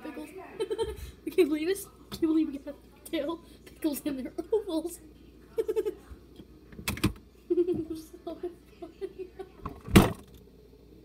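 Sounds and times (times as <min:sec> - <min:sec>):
child giggling: 0:00.6 - 0:01.2, 0:05.5 - 0:06.1, 0:07.5 - 0:09.6.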